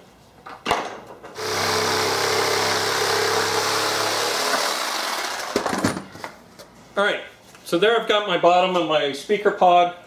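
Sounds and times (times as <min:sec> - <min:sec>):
electric jigsaw cutting board: 0:01.4 - 0:06.0.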